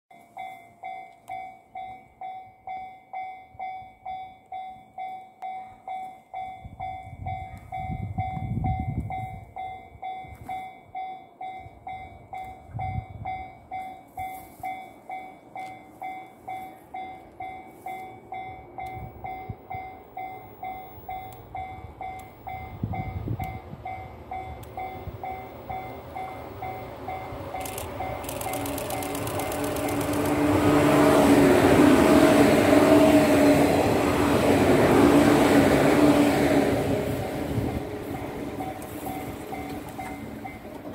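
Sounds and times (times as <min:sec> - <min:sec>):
level crossing bell ringing: 0:00.1 - 0:29.3.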